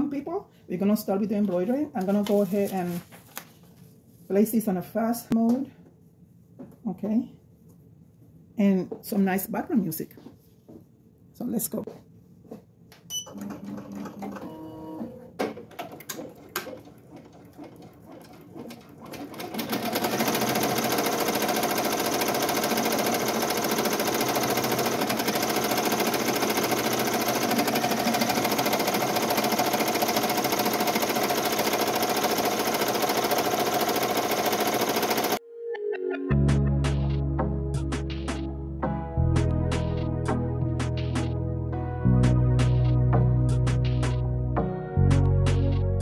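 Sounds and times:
rapid machine stitching: 16.2 - 35.4.

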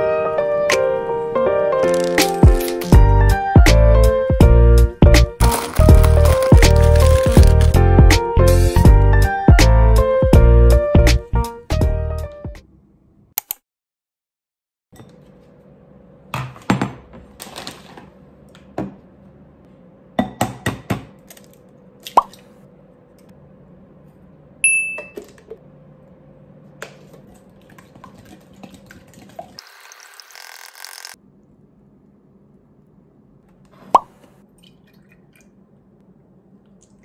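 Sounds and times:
glass bowl clink: 24.6 - 25.2.

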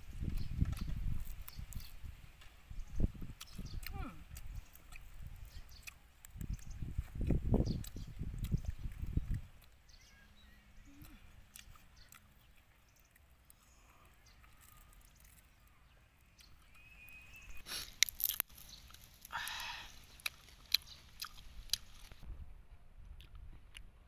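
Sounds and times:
chewing: 3.3 - 10.0, 10.8 - 22.2
crisp fish skin crackling: 17.7 - 22.2.

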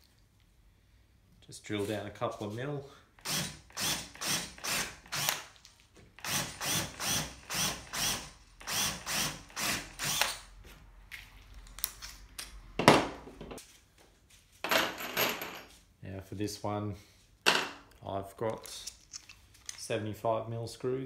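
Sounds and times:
cordless drill drilling timber: 3.2 - 5.4, 6.2 - 10.4.

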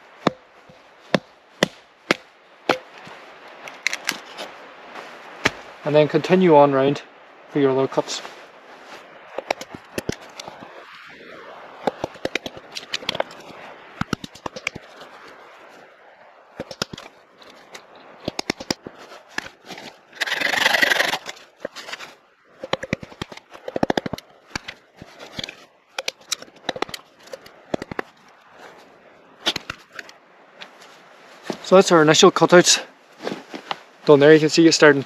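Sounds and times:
sharp wooden knocks: 0.2 - 3.1, 9.4 - 10.6, 11.8 - 13.4, 14.0 - 14.8, 16.6 - 17.1, 18.2 - 19.5, 22.6 - 28.1.

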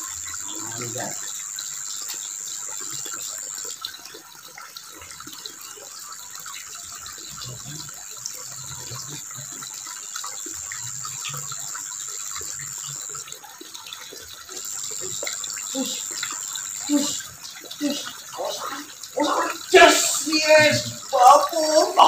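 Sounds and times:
small scattered ticks: 0.0 - 22.0
water trickling and splashing: 0.0 - 22.0
thin high whine: 14.6 - 22.0.

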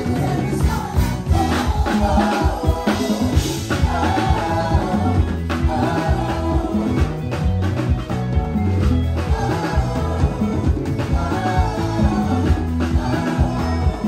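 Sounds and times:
congas: 0.0 - 14.0
drum kit: 0.0 - 14.0
electric bass line: 0.0 - 14.0
person singing: 9.3 - 14.0.

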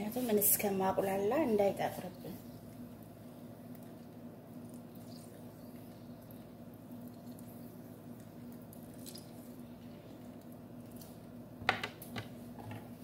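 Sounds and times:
steady low hum: 0.0 - 13.0
juice dripping: 2.1 - 12.1.

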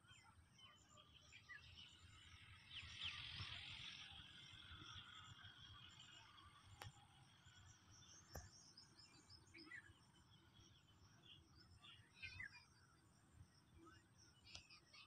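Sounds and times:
small birds chirping: 0.0 - 15.0
faint clicks: 6.7 - 7.2, 14.4 - 14.8.

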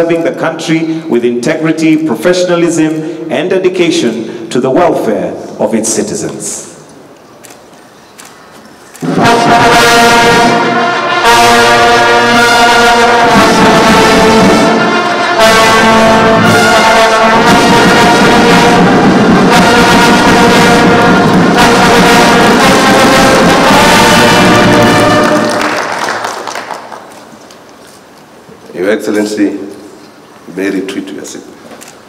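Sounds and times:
brass band playing held chords: 9.0 - 27.0.

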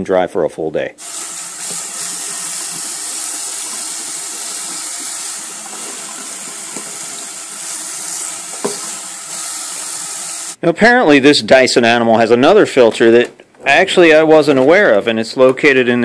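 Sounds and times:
tap water splashing in sink: 1.0 - 10.4.

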